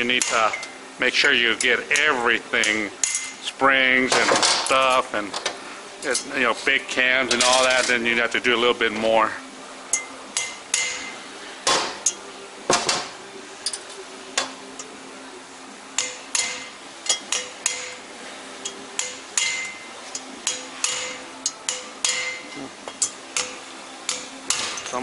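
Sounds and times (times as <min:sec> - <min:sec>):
hammer striking metal: 0:09.9 - 0:14.5, 0:16.0 - 0:25.0.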